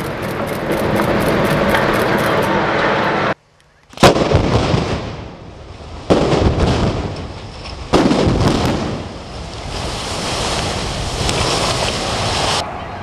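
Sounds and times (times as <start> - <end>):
collapsing building rumble: 0.0 - 3.4
demolition blasts: 4.0 - 12.6.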